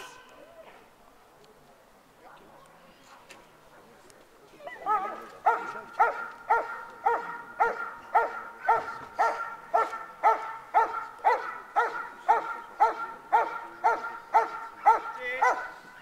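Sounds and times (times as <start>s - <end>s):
dog barking: 4.9s - 15.9s.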